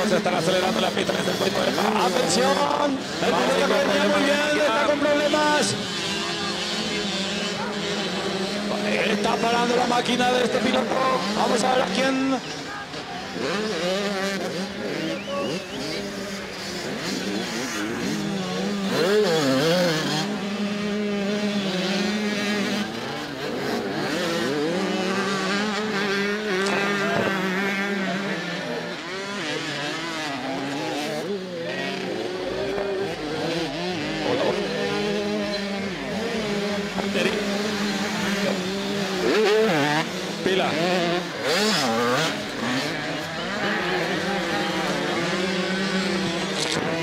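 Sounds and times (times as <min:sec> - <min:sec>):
motocross bikes revving: 0:00.0 - 0:47.0.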